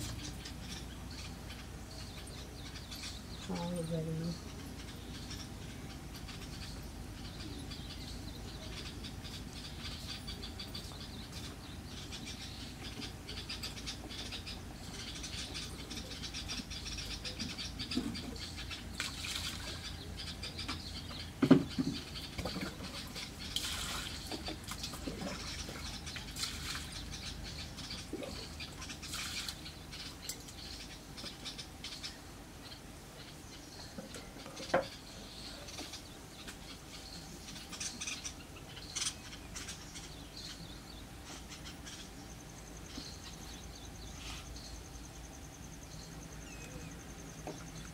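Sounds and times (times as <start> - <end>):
small birds chirping: 0.0 - 47.9.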